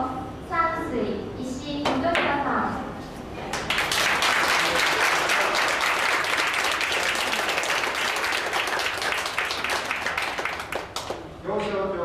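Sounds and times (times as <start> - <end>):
crowd applauding: 3.6 - 11.3.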